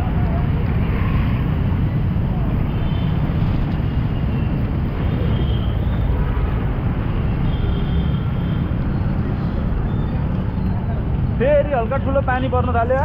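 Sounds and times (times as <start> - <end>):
traffic on wet road: 0.0 - 13.0.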